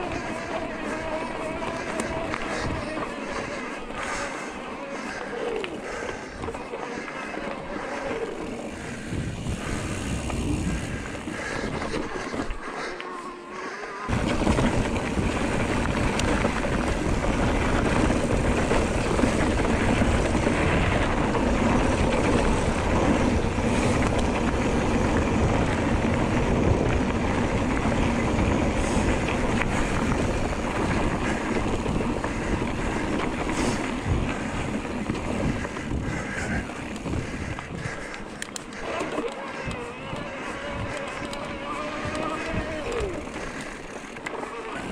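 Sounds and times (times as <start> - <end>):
tyres rumbling on dirt: 0.0 - 12.8, 14.1 - 44.9
bike rattling over bumps: 0.0 - 13.0, 13.6 - 44.9
wind buffeting microphone: 8.2 - 12.6, 14.1 - 43.9.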